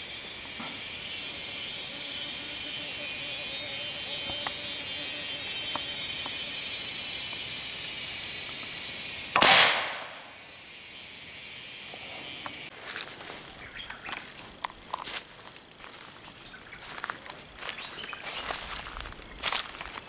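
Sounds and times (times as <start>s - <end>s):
forest hiss: 0.0s - 20.0s
loud gunshot: 9.3s - 10.3s
footsteps crunching dry leaves: 12.7s - 20.0s.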